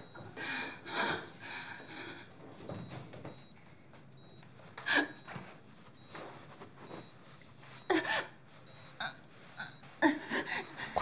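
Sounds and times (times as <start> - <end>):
woman sobbing: 7.8 - 8.4, 9.0 - 11.0.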